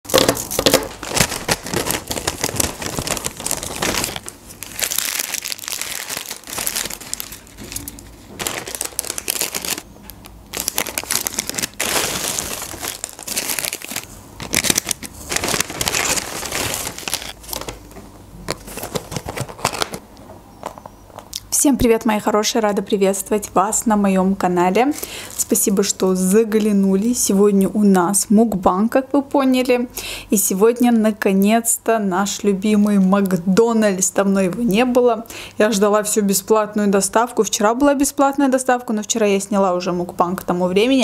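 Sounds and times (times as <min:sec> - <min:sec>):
paper wrappers crinkling: 0:00.1 - 0:17.8, 0:18.5 - 0:20.0.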